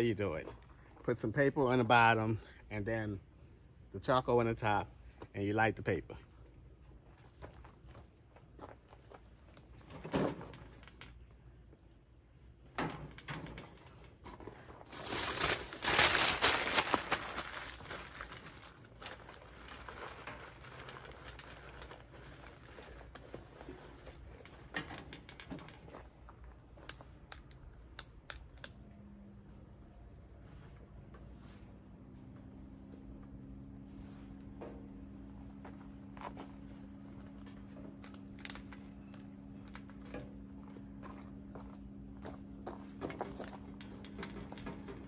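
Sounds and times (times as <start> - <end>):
charcoal being handled: 13.2 - 27.0
paper crumpling and rustling: 14.6 - 24.6.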